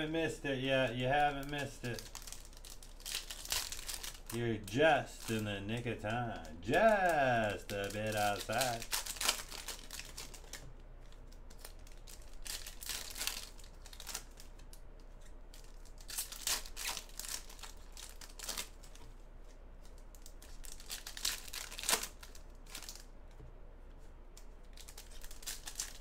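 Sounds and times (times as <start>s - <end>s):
foil wrappers crinkling and tearing: 0.0s - 19.1s, 19.8s - 23.1s, 24.6s - 26.0s.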